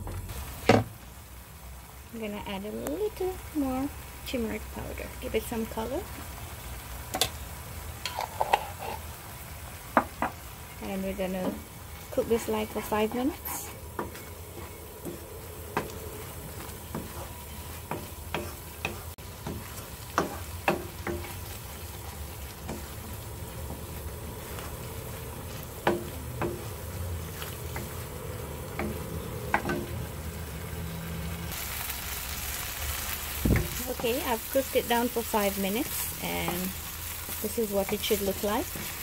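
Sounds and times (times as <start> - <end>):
wooden spoon scraping a pan: 8.0 - 9.2, 10.9 - 30.0
paste sizzling: 8.0 - 39.0.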